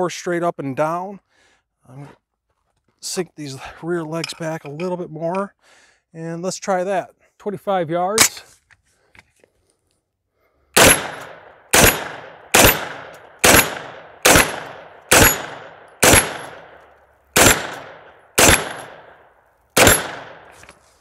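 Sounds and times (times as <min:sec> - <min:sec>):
pistol shots with echo: 0:10.8 - 0:16.8, 0:17.4 - 0:20.6.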